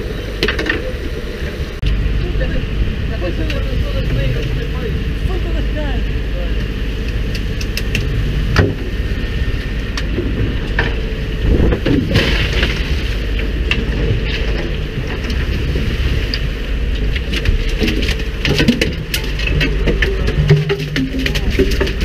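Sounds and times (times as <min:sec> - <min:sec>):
boat engine rumble: 0:00.0 - 0:22.0
water splashing on hull: 0:00.0 - 0:22.0.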